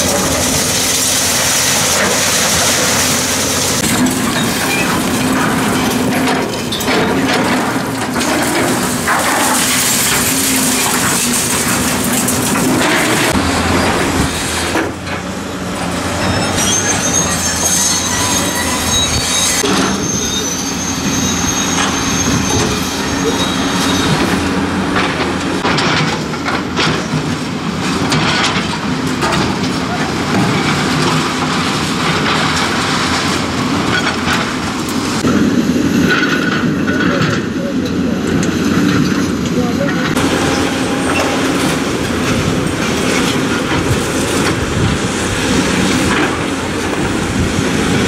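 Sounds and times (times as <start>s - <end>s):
high metal squeal: 0.0s - 14.8s, 15.9s - 24.9s, 40.2s - 48.0s
falling concrete and debris crashing: 0.0s - 15.2s
excavator engines running: 0.0s - 48.0s.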